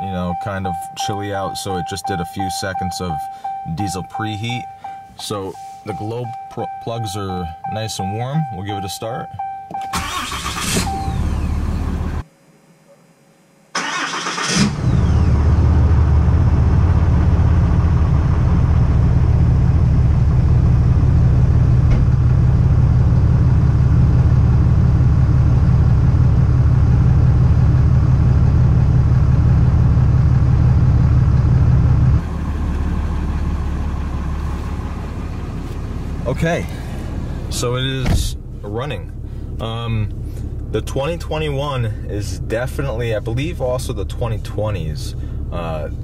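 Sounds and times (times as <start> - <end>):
diesel engine starting and idling: 0.0 - 8.8, 9.4 - 12.3, 13.8 - 46.0.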